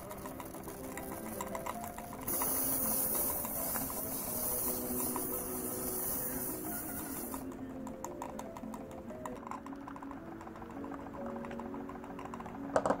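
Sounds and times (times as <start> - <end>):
steam hissing from boiler: 0.0 - 7.6
background music: 0.0 - 13.0.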